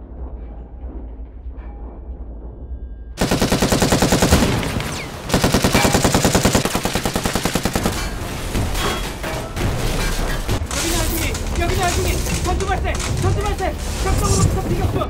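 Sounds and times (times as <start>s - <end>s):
low rumble: 0.0s - 5.3s
heavy machine-gun fire: 3.2s - 8.8s.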